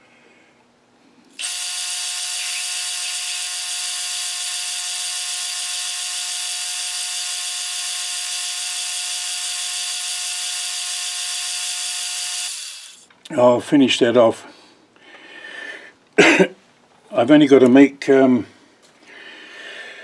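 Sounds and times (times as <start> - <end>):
drill boring into metal: 1.3 - 13.1
metal lathe running: 1.4 - 13.1.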